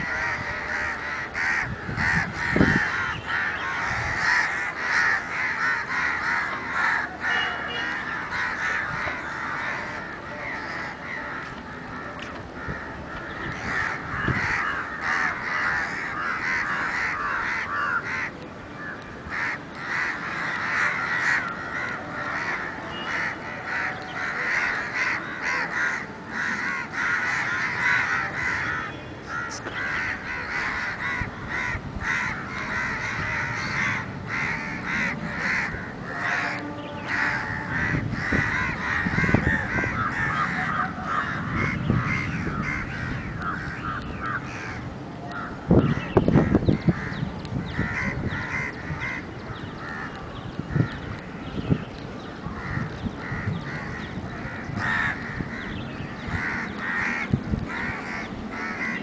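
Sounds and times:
crows cawing: 0.0 - 51.6, 52.5 - 59.0.

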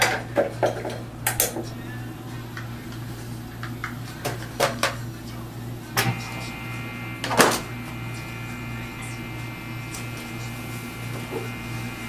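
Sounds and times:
low electrical hum: 0.0 - 12.0
faint high tones: 6.0 - 12.0.

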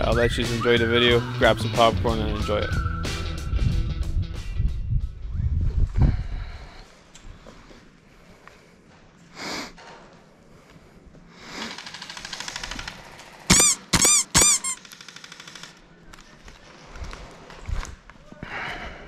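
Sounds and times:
squeaky ringing chirp: 13.5 - 14.8.

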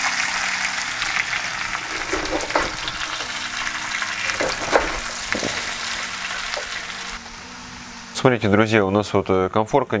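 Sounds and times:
potatoes sizzling in oil: 0.0 - 7.2
spatula scraping a pan: 1.7 - 6.8.

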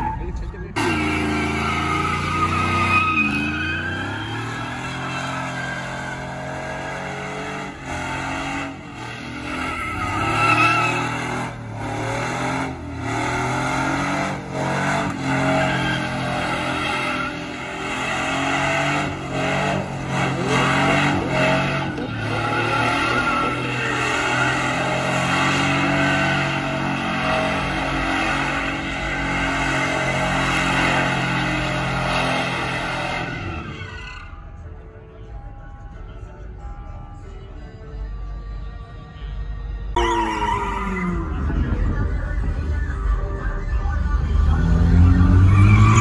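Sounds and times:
truck engine revving high: 0.0 - 34.3, 40.0 - 46.0
tyres squealing on concrete: 0.0 - 34.4, 40.0 - 41.4, 45.1 - 46.0.

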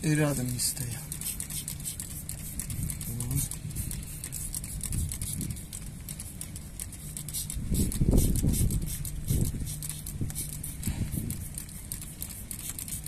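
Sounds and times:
spray bottle spritzing: 0.4 - 13.0.

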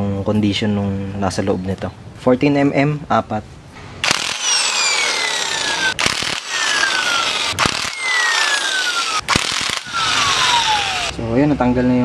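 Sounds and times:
power driver whine: 4.0 - 11.2.

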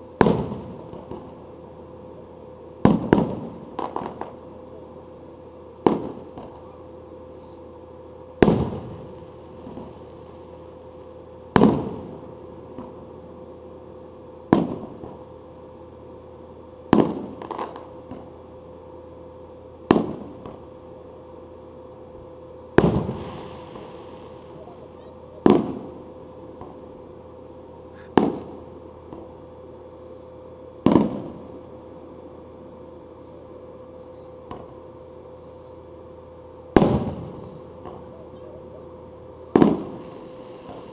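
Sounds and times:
firework shells bursting with echo: 0.1 - 1.5, 2.8 - 4.8, 5.8 - 6.7, 8.3 - 10.8, 11.4 - 13.2, 14.4 - 15.4, 16.9 - 18.3, 19.8 - 20.8, 22.6 - 29.4, 30.8 - 31.6, 36.7 - 38.6, 39.4 - 40.9
firework crackle: 8.4 - 10.4, 22.7 - 26.0, 36.8 - 38.2, 39.5 - 40.9.

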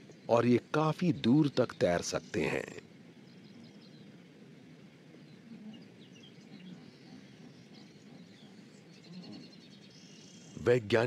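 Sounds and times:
low background wash: 0.0 - 11.0
small birds chirping: 0.0 - 11.0.

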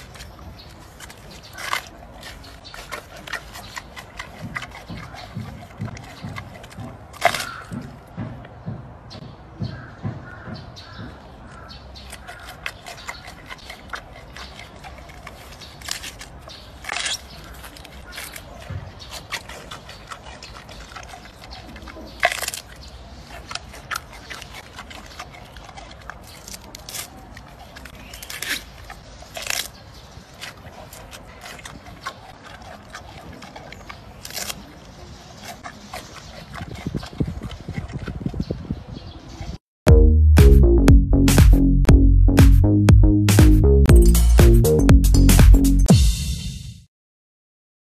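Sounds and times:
panda chewing bamboo: 0.0 - 9.1, 11.0 - 39.6.

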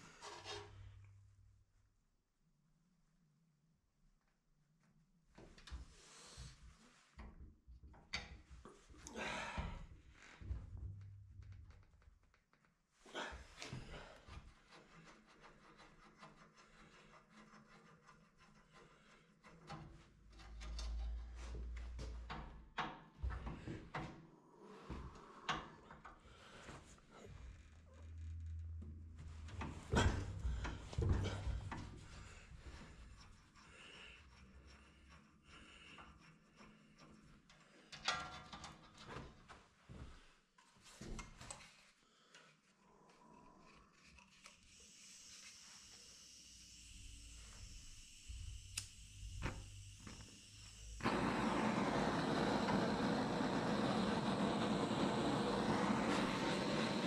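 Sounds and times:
blowtorch hissing: 44.7 - 57.0.

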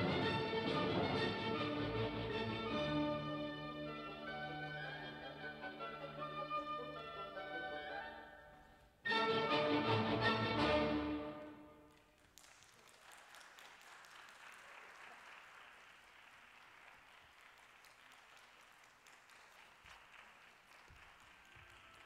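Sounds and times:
audience applause: 11.9 - 22.0.

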